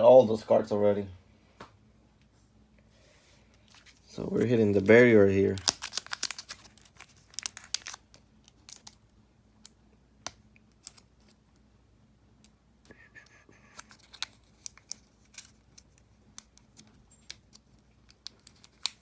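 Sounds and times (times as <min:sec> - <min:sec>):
foil pack crinkling and tearing: 0:03.7 - 0:09.0, 0:13.7 - 0:16.0.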